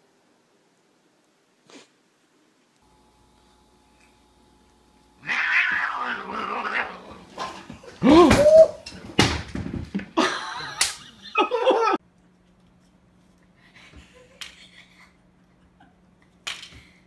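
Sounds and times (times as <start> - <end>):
cat yowling: 5.2 - 7.4
cats slapping and scuffling: 5.2 - 10.2.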